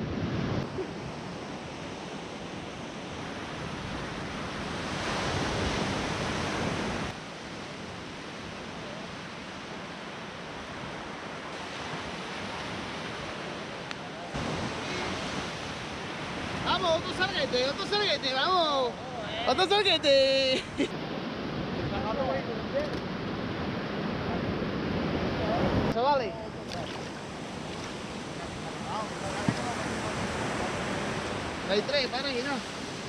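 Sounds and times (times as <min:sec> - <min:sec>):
wind on microphone: 0:00.0 - 0:09.8
surf breaking on a beach: 0:00.0 - 0:33.0.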